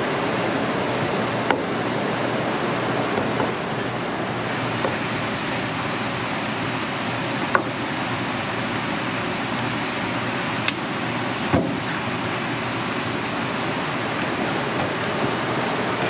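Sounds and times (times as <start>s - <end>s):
steady rushing noise: 0.0s - 7.5s, 10.7s - 16.0s.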